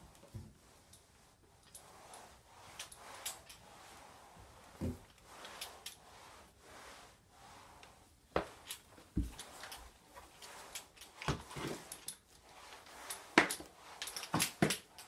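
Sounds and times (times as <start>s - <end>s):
mop pad swishing on tile floor: 0.0s - 15.0s.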